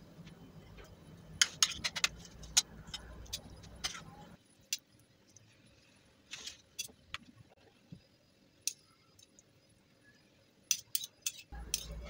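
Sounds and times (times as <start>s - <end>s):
metal spoon clinking on tray: 10.7s - 12.0s.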